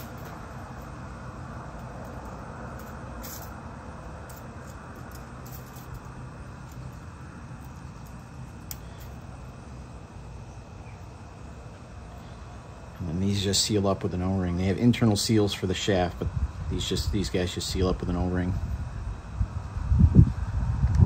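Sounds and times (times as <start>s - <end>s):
metal parts clicking: 0.0s - 1.0s, 1.7s - 9.3s
low rumble and hiss: 0.0s - 21.0s.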